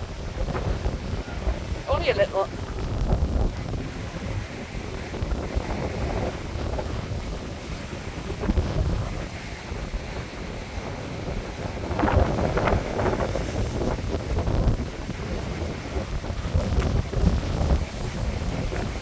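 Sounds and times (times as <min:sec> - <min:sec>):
waves breaking on rocky shore: 0:00.0 - 0:19.0
wind buffeting microphone: 0:00.0 - 0:19.0.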